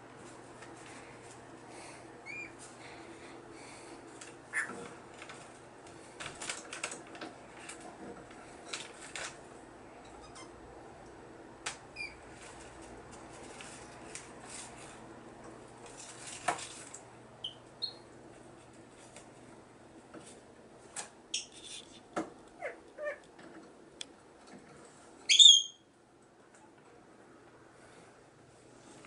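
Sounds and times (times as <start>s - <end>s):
faint steady hum: 0.0s - 29.0s
parrot chirps: 2.2s - 2.6s, 4.5s - 4.7s, 17.4s - 18.0s, 25.3s - 25.8s
paper rustling: 8.4s - 9.4s, 12.3s - 15.0s.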